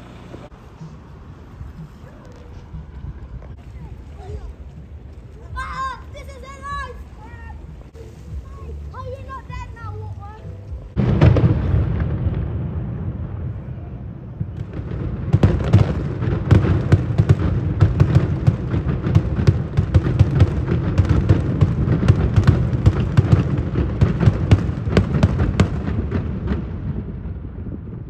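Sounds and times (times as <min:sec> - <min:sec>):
fireworks cracks and bangs: 0:05.3 - 0:28.0
deep rumble: 0:06.7 - 0:28.0.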